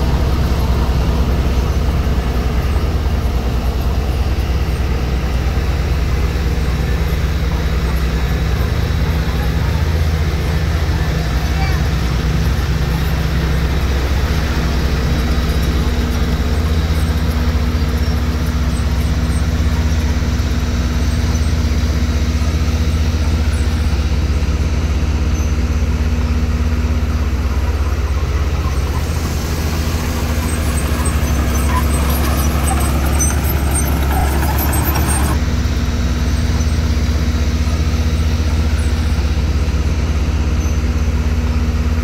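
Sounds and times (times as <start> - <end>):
diesel engine droning: 0.0 - 42.0.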